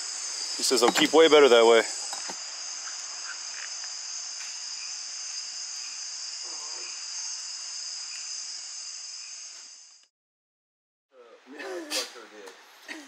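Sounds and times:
crickets chirping: 0.0s - 10.1s.

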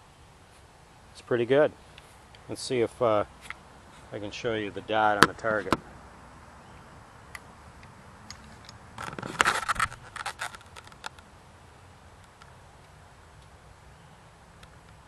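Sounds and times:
camera handling noise: 7.4s - 11.3s.

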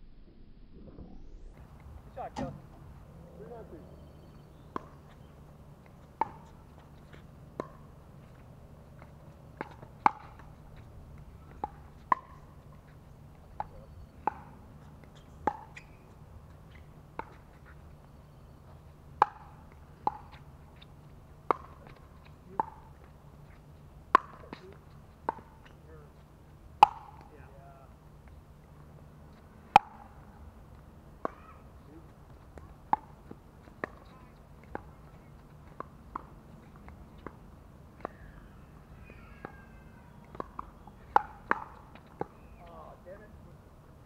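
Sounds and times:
paddles hitting plastic ball: 26.8s - 27.3s.

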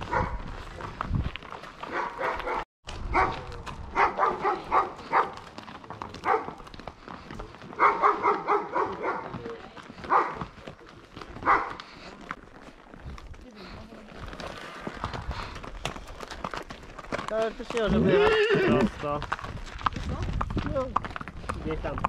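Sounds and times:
dog barking: 0.1s - 0.4s, 1.9s - 5.4s, 6.2s - 6.6s, 7.8s - 9.4s, 10.1s - 10.4s, 11.4s - 11.8s.

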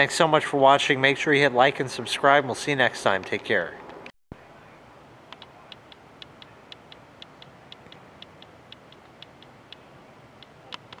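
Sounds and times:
faint steady hiss: 4.4s - 11.0s.

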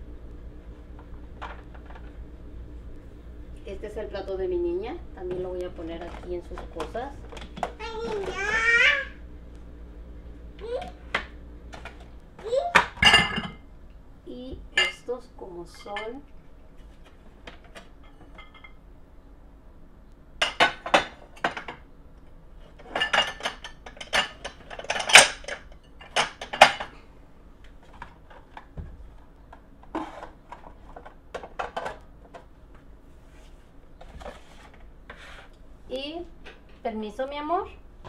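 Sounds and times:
dishes and glassware clinking: 12.8s - 13.6s, 14.8s - 15.1s, 18.0s - 18.8s, 22.8s - 26.9s.

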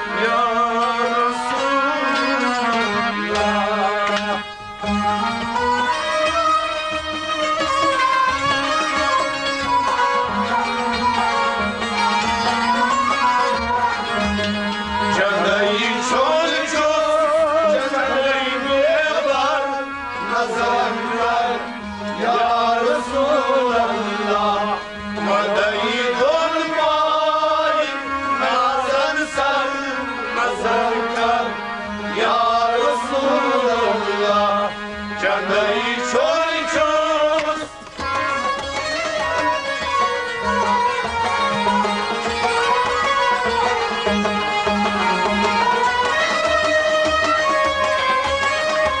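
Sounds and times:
man singing: 0.0s - 4.5s, 15.0s - 37.8s
bowed sarangi: 0.0s - 49.0s
harmonium: 0.0s - 49.0s.

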